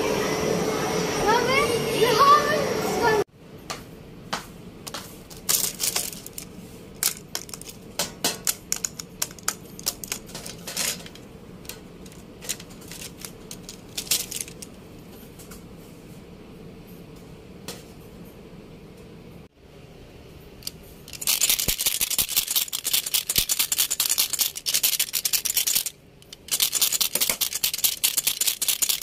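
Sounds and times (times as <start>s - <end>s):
wooden pencils clattering: 4.9s - 14.8s, 21.1s - 29.0s.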